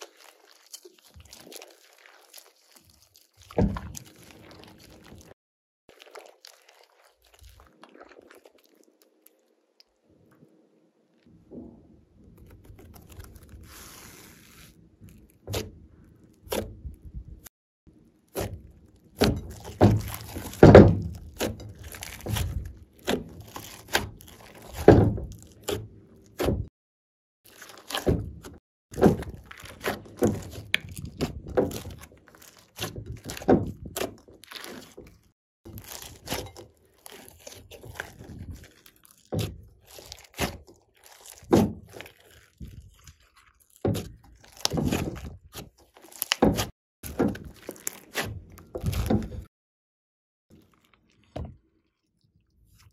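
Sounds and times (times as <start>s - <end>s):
slime squelching: 0.0s - 26.6s, 27.5s - 49.5s, 50.5s - 52.9s.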